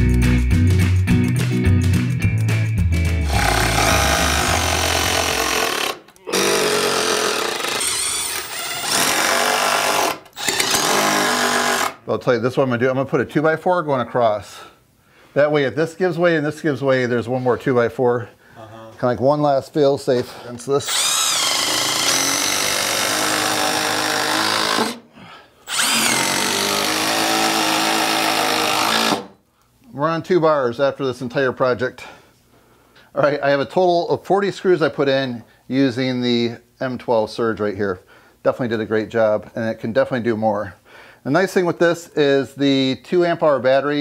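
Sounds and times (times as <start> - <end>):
impact driver whining: 3.2 - 12.0, 20.9 - 25.1, 25.7 - 29.4.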